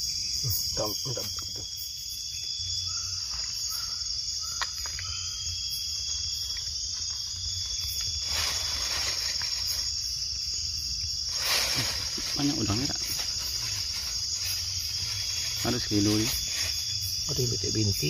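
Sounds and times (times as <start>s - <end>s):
insect chorus trilling: 0.0s - 18.0s
rustling: 6.2s - 10.4s, 11.1s - 17.3s.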